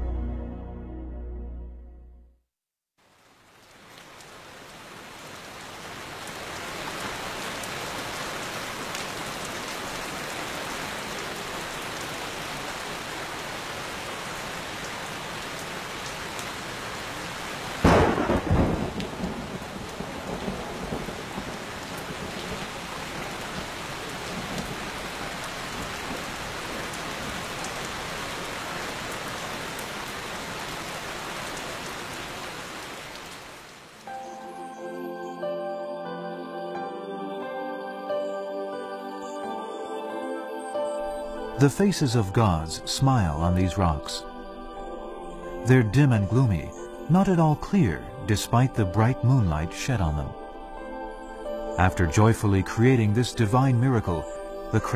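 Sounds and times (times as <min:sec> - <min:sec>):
steady rain: 0:03.0 - 0:34.9, 0:40.0 - 0:54.9
thunderclap with rumble: 0:17.8 - 0:23.7.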